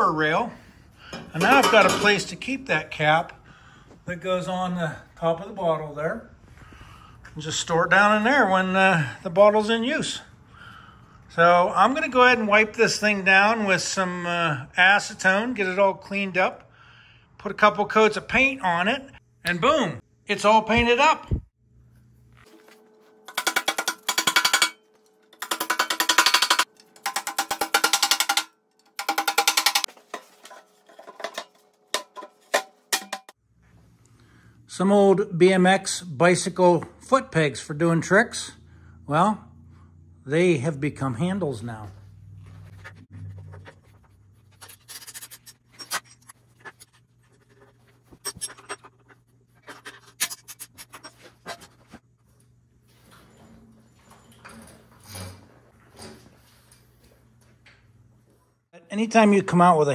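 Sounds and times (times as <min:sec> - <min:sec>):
metal knocks and clanks: 0:01.2 - 0:02.4, 0:23.3 - 0:33.4
hammer tapping steel tubing: 0:23.3 - 0:24.8, 0:25.4 - 0:29.9.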